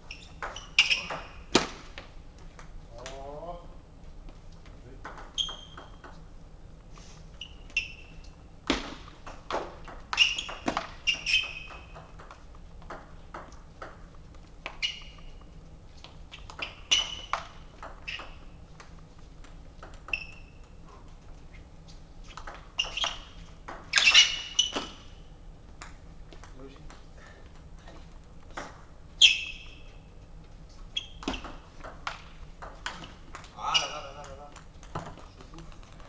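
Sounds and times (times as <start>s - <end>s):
table tennis ball hits: 0.3s - 2.0s, 5.0s - 6.2s, 7.7s - 15.2s, 16.4s - 21.2s, 22.4s - 25.2s, 25.8s - 29.9s, 31.1s - 36.0s.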